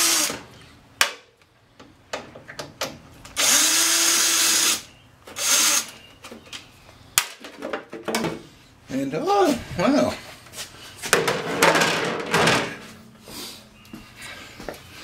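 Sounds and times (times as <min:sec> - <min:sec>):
cordless drill whine: 0:03.4 - 0:05.9.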